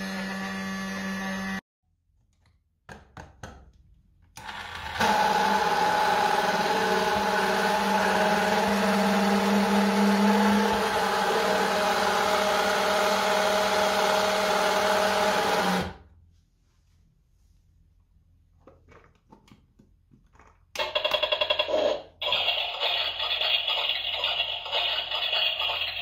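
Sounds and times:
toy mixer motor whirring: 0:04.4 - 0:16.0, 0:20.8 - 0:26.0.

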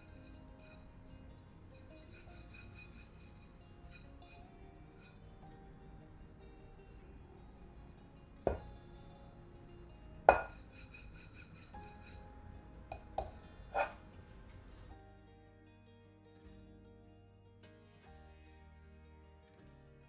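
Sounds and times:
soft background music: 0:00.0 - 0:20.0
frying pan knocking on tabletop: 0:08.5 - 0:08.7, 0:10.3 - 0:10.6, 0:12.9 - 0:14.0.

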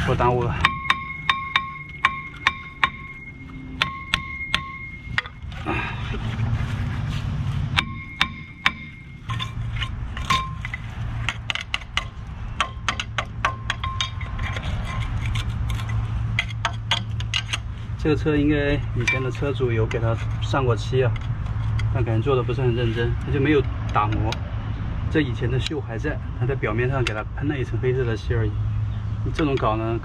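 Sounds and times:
hammer ringing on steel: 0:00.6 - 0:05.4, 0:07.8 - 0:09.5.

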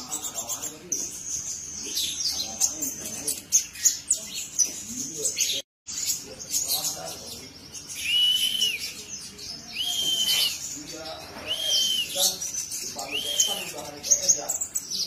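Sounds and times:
bird twittering chirps: 0:00.0 - 0:15.0
bird whistled notes: 0:08.0 - 0:09.0, 0:09.7 - 0:10.6, 0:11.4 - 0:12.4, 0:13.0 - 0:13.8.

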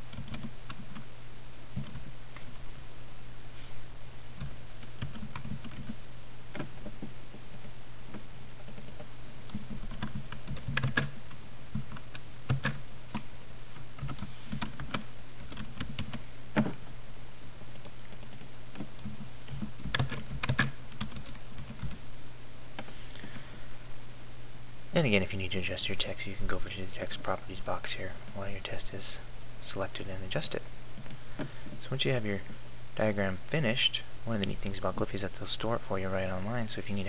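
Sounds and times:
steady low hum: 0:00.0 - 0:37.0
typing on keyboard: 0:00.1 - 0:01.0, 0:04.4 - 0:06.0, 0:08.6 - 0:13.2, 0:14.0 - 0:16.2, 0:17.7 - 0:22.0.

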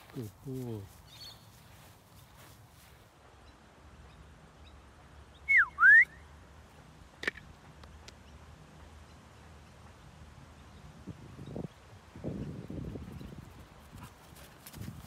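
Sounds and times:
person whistling gliding notes: 0:05.5 - 0:06.2.

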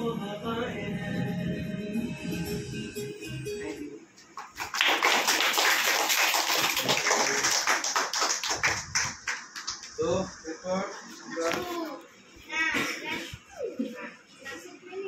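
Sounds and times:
audience applauding: 0:04.4 - 0:10.0.

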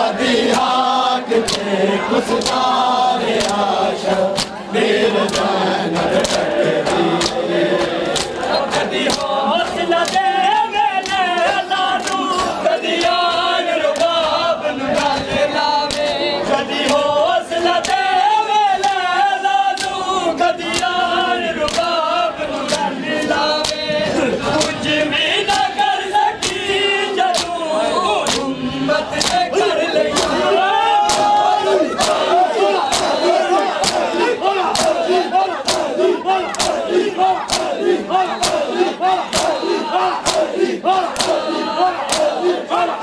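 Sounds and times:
men chanting together: 0:00.0 - 0:43.0
hands slapping chests: 0:01.4 - 0:01.7, 0:02.4 - 0:02.7, 0:03.3 - 0:03.7, 0:04.3 - 0:04.6, 0:05.2 - 0:16.2, 0:17.7 - 0:18.1, 0:19.7 - 0:20.0, 0:20.6 - 0:21.0, 0:21.6 - 0:22.0, 0:22.6 - 0:23.9, 0:24.5 - 0:24.8, 0:25.5 - 0:25.7, 0:26.4 - 0:26.6, 0:27.3 - 0:27.6, 0:28.2 - 0:28.5, 0:29.2 - 0:42.6.

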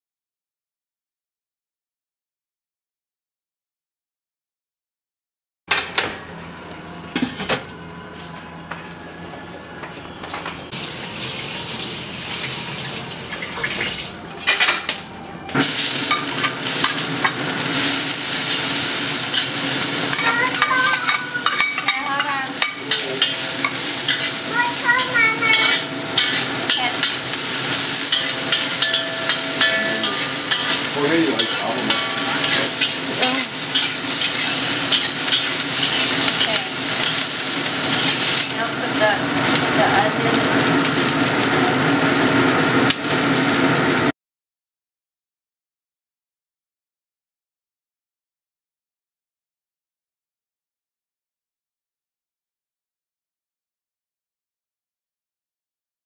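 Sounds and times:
sizzling in a hot wok: 0:10.7 - 0:14.2, 0:15.6 - 0:44.1
metal spatula scraping a wok: 0:16.0 - 0:24.4, 0:25.0 - 0:38.6.

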